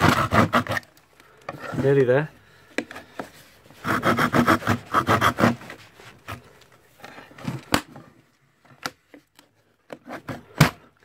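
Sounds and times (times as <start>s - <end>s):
hand saw cutting plywood: 0.0s - 2.0s, 3.7s - 6.5s, 9.9s - 11.0s.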